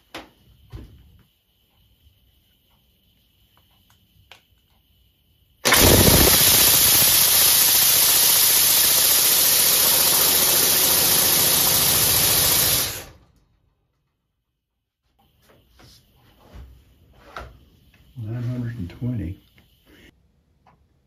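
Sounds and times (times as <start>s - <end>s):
compressed air engine exhaust pulsing: 5.6s - 13.2s.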